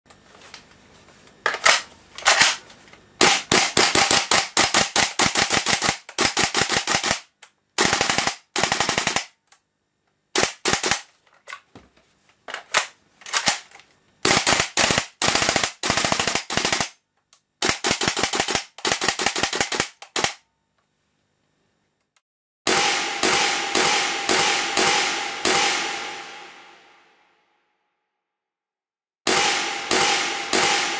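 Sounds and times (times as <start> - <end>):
airsoft rifle shots: 3.2 - 9.4, 10.4 - 11.1, 14.2 - 17.0, 17.6 - 20.4, 22.7 - 26.6, 29.3 - 30.9.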